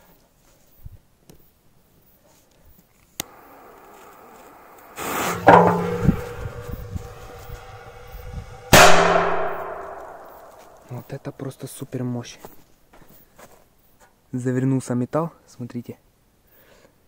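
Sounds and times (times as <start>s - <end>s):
metallic ringing: 3.3s - 11.1s
firecracker bang in metal can: 5.0s - 10.9s.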